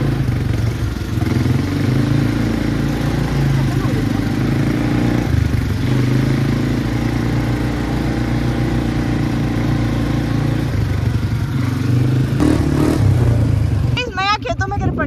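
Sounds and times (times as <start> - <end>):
quad bike engine: 0.0 - 15.0
wind and road noise: 0.0 - 15.0.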